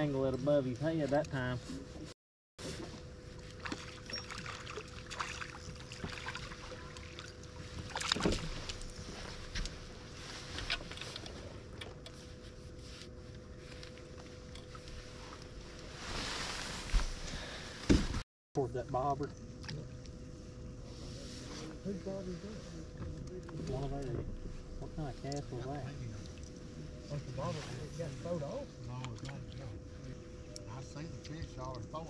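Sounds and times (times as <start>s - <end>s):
faint steady hum: 0.0s - 32.0s
water noise: 3.3s - 12.1s.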